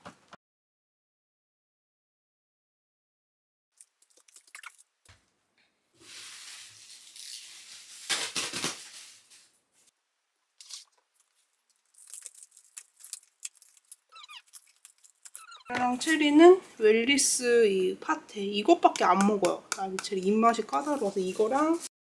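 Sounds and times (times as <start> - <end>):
packaging crinkling: 6.0 - 9.6, 10.6 - 15.7
packaging tearing: 6.1 - 9.5, 10.6 - 15.7.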